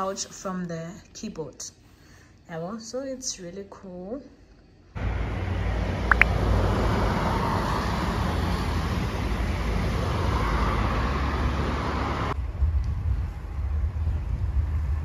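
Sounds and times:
cars passing: 0:05.0 - 0:12.4
motorcycle passing: 0:05.0 - 0:12.4
low traffic rumble: 0:05.0 - 0:15.0.

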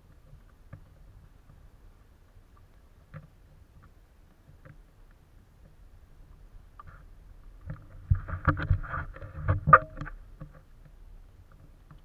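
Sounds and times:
camera mount knocks and scraping: 0:07.7 - 0:10.6.

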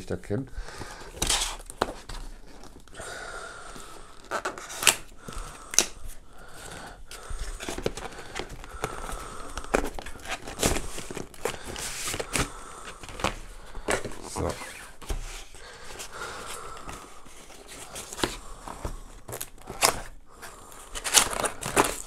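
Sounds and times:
rustling: 0:03.8 - 0:22.0
cardboard scraping and sliding: 0:07.4 - 0:16.1.

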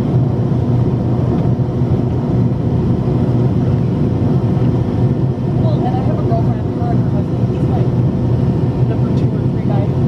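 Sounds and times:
airliner cabin drone: 0:00.0 - 0:10.0
rushing airflow: 0:00.0 - 0:10.0.

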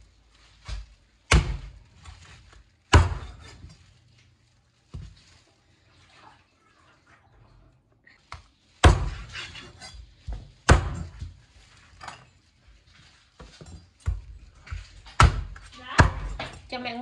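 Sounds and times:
knife chopping on cutting board: 0:10.6 - 0:11.2.

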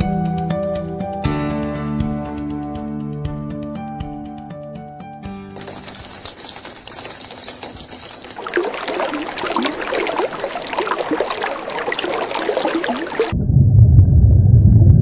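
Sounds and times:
water running in thin stream: 0:05.6 - 0:13.3
water splashing into water: 0:05.6 - 0:13.4
loud low rumble: 0:13.3 - 0:15.0.

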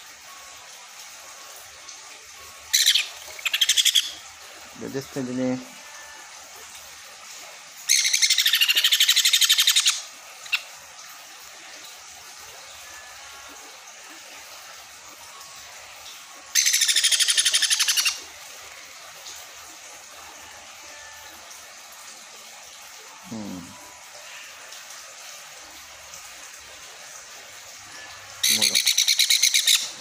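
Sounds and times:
baby parrot chirping: 0:02.7 - 0:04.1, 0:07.9 - 0:09.9, 0:16.6 - 0:18.1, 0:28.4 - 0:29.8.

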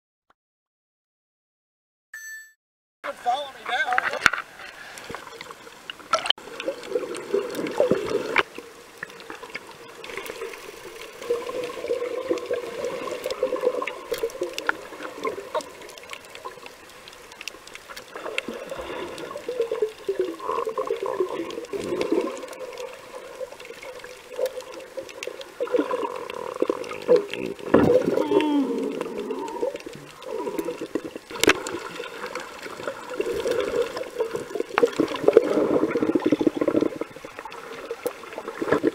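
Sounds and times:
underwater water and bubbles: 0:03.7 - 0:38.9
sharp underwater clicks: 0:13.1 - 0:38.9.

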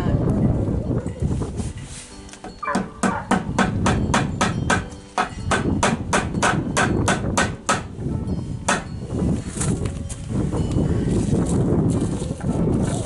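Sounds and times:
hammer driving nail into wood: 0:02.7 - 0:07.9.

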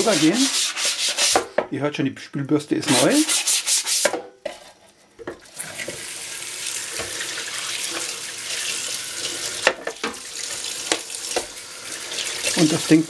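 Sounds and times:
brush scrubbing tray: 0:00.0 - 0:01.4, 0:02.8 - 0:04.1
tap water splashing: 0:06.9 - 0:12.6.

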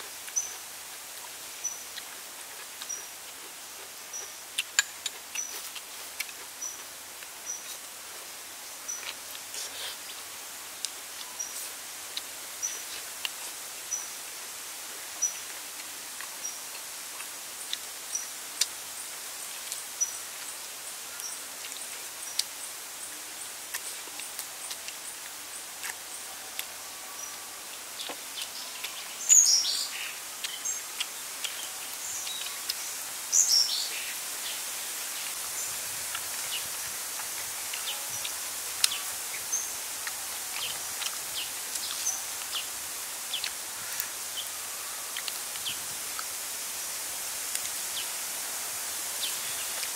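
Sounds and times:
steady high hiss: 0:00.0 - 0:49.9.

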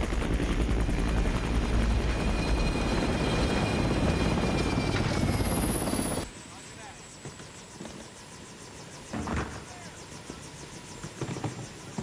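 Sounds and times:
helicopter rotor blades chopping: 0:00.0 - 0:06.3
high turbine whine: 0:00.0 - 0:12.0.

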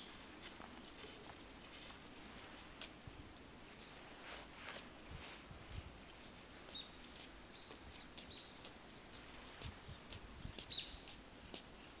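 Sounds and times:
dry leaves rustling: 0:00.0 - 0:09.6
bird chirps: 0:06.7 - 0:08.6, 0:10.7 - 0:11.1.

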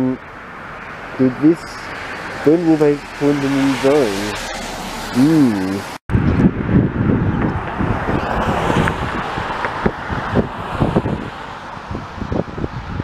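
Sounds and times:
road traffic passing: 0:00.0 - 0:13.0
tyres hissing on wet road: 0:00.9 - 0:06.0
wind buffeting microphone: 0:05.8 - 0:13.0.

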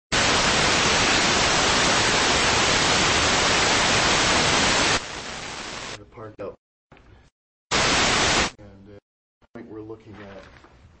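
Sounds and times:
loud static hiss: 0:00.1 - 0:06.0, 0:07.7 - 0:08.6.

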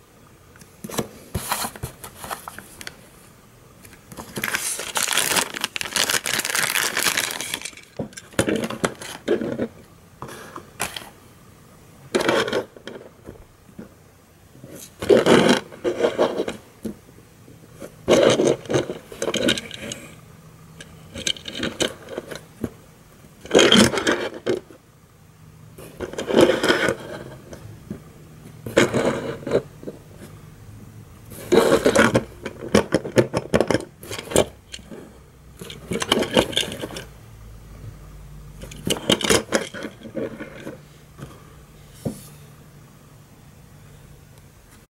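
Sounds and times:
toy car scraping on tabletop: 0:25.8 - 0:27.5, 0:31.3 - 0:32.2.

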